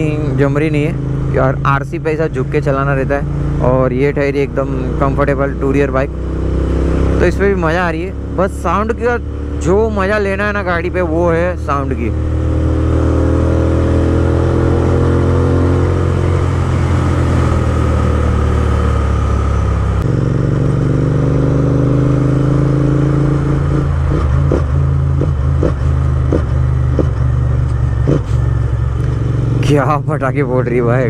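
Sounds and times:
motorcycle engine accelerating: 0.0s - 31.0s
exhaust backfire pops: 24.1s - 29.2s.

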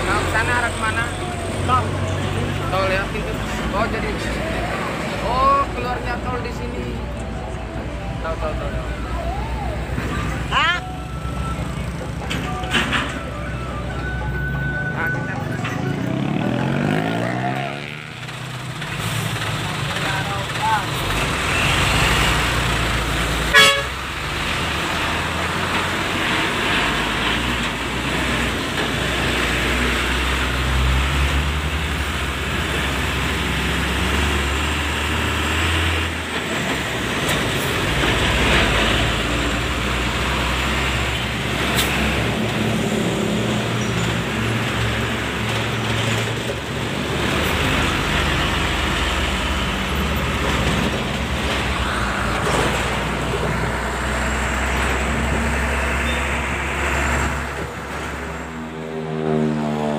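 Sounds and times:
truck engine running: 0.0s - 59.3s
road noise: 0.0s - 59.9s
vehicle horn toot: 23.5s - 24.0s.

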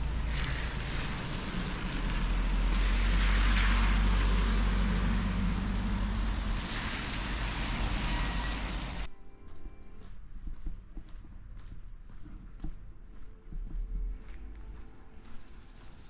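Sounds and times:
car tyres hissing on wet road: 0.0s - 9.1s
steady low rumble: 0.0s - 9.1s.

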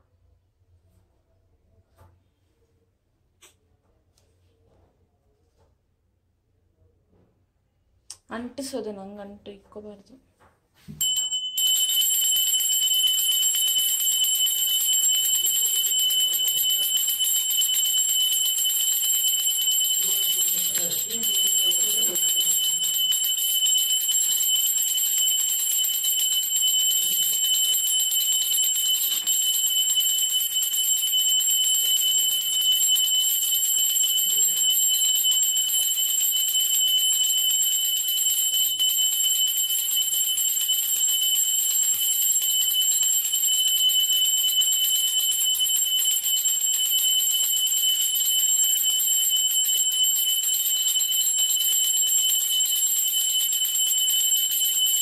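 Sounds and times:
hand bell ringing continuously: 11.0s - 55.0s.

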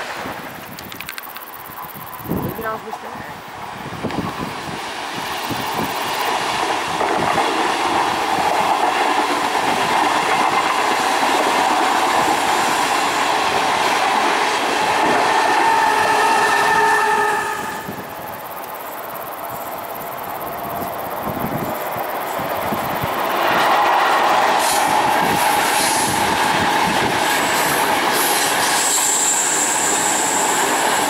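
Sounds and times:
passenger train passing on rails: 0.0s - 31.0s.

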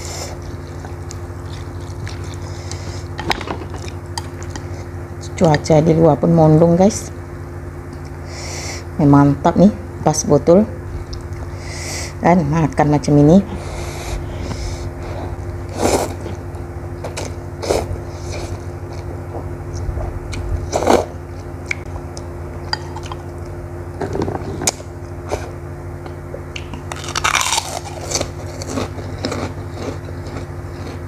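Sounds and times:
slurping and chewing noodles: 0.0s - 3.2s, 13.6s - 16.4s, 27.2s - 31.0s
steady low hum: 0.0s - 31.0s.

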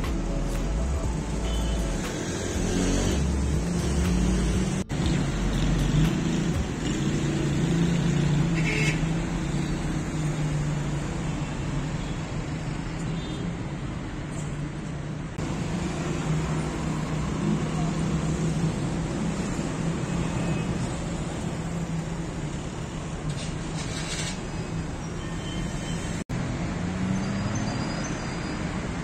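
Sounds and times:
car engines humming: 0.0s - 13.4s
tyres on road: 0.0s - 29.0s.

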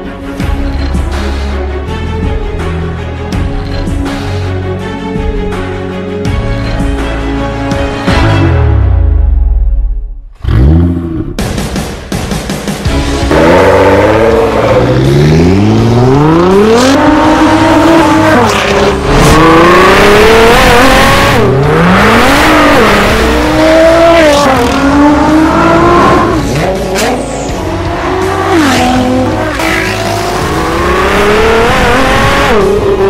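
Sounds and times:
car engine accelerating hard: 10.4s - 11.4s, 13.2s - 33.0s.

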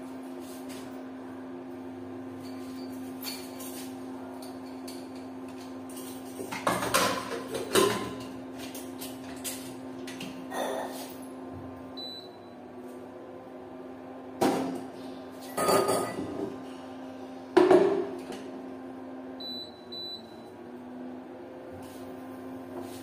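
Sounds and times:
cooktop control beeps: 12.0s - 12.6s, 19.4s - 20.5s
knocks on cooktop: 17.6s - 18.1s.

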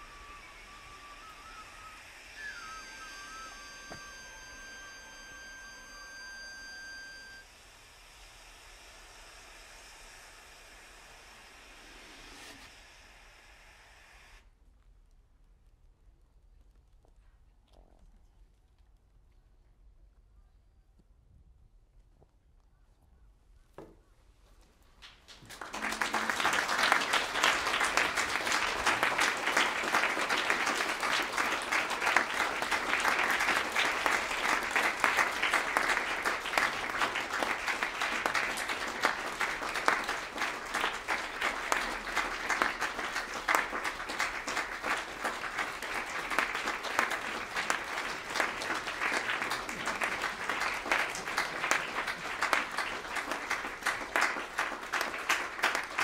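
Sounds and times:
audience applauding: 0.0s - 7.4s, 25.0s - 56.0s.

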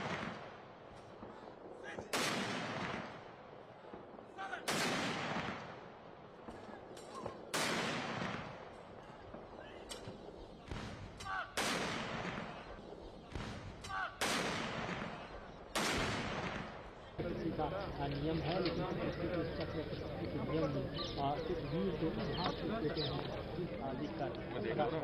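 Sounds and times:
field guns firing: 0.0s - 17.2s.

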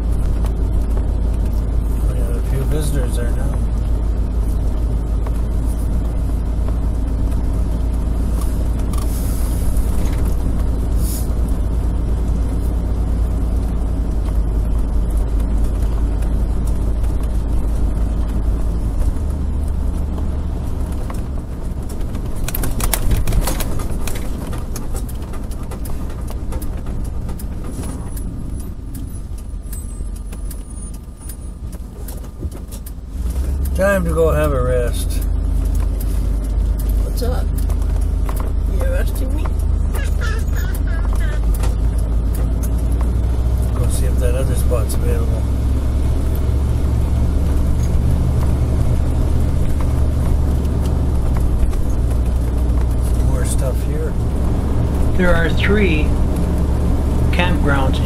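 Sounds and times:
road and engine rumble: 0.0s - 58.0s.

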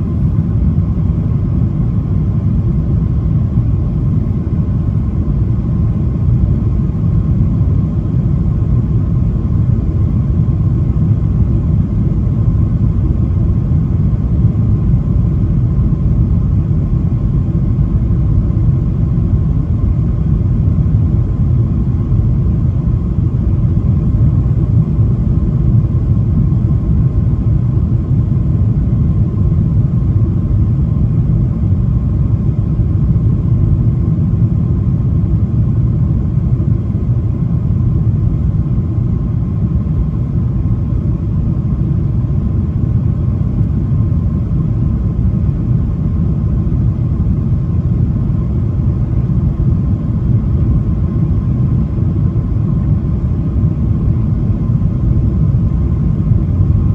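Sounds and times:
aircraft engine noise: 0.0s - 56.9s.

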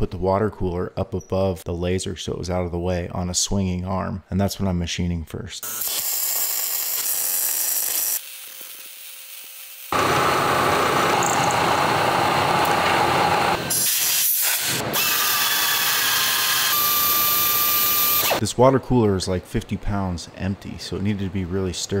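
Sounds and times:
welding arc hiss: 5.6s - 11.9s, 12.8s - 18.4s
milling machine cutting metal: 5.7s - 18.4s
machine spindle whine: 9.9s - 13.8s, 14.9s - 18.4s.

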